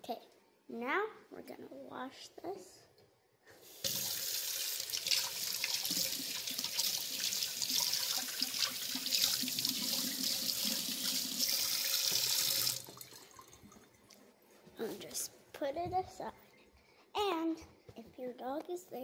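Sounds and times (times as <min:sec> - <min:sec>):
faucet water splashing: 0:03.8 - 0:14.1.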